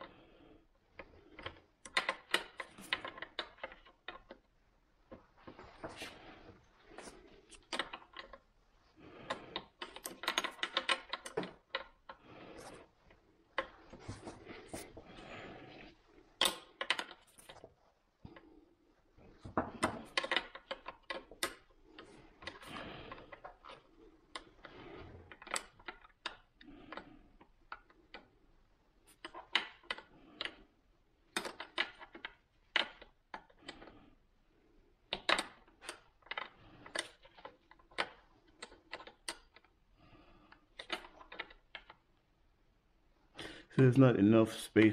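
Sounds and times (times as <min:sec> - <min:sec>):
gloved hands rustling: 0:11.5 - 0:16.4.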